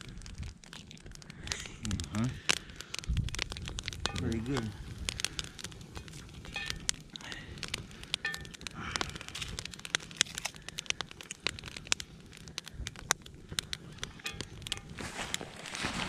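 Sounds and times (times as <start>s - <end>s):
meat crackling in a skillet: 0.0s - 16.0s
sharp fat pops: 0.4s - 16.0s.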